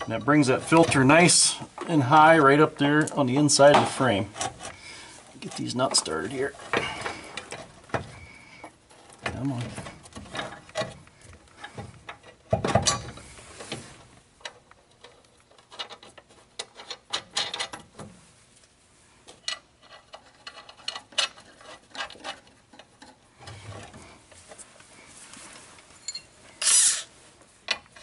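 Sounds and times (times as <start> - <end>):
metal bolts clicking and rattling: 14.4 - 18.0, 19.3 - 23.2.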